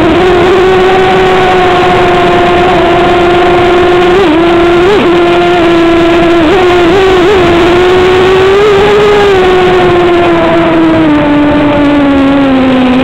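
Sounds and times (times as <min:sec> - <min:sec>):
drone motors whining: 0:00.0 - 0:13.0.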